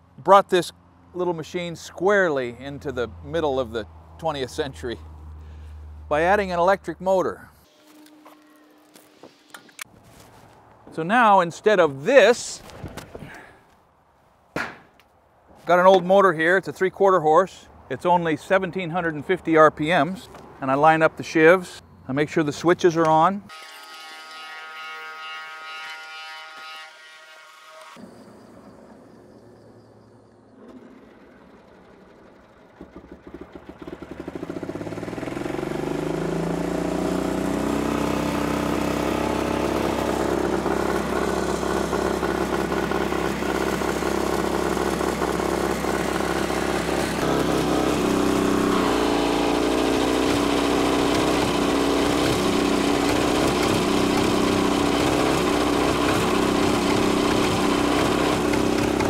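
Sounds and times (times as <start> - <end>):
electric motor cranking engine: 30.2 - 59.0
engine running steadily: 30.6 - 59.0.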